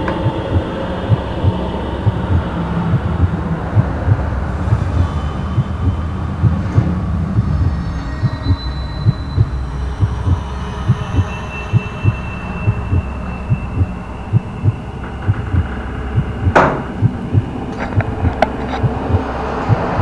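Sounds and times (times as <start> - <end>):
low hum: 0.0 - 20.0
low dull thuds: 13.6 - 20.0
sharp knock: 16.6 - 17.0.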